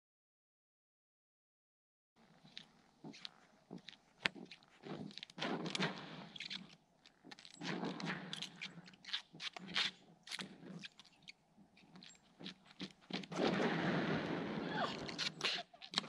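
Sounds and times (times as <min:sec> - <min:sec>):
boots scraping on ice: 0:02.2 - 0:13.8.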